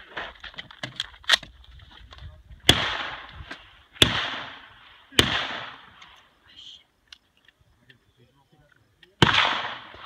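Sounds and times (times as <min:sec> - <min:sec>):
rifle handling clicks and knocks: 0:00.3 - 0:02.3
rifle shots with echo: 0:02.6 - 0:06.2, 0:09.2 - 0:10.0.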